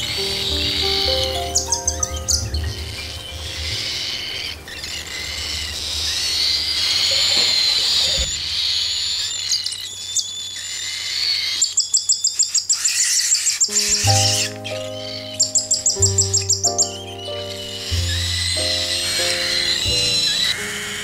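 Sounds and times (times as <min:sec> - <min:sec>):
bird chicks begging calls: 0:00.0 - 0:21.0.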